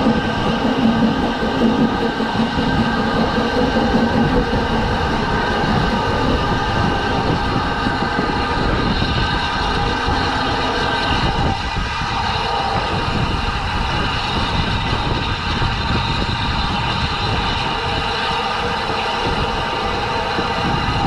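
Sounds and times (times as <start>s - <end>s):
low rumble: 0.0s - 21.0s
steam locomotive hissing steam: 0.0s - 21.0s.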